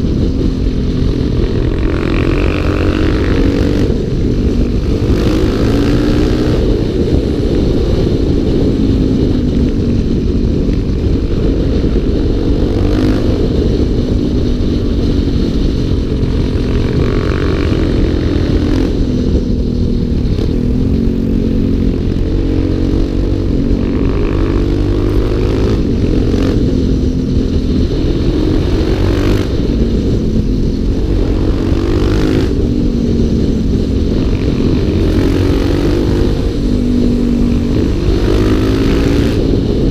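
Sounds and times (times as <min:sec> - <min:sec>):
motorcycle engine revving: 0:00.0 - 0:39.9.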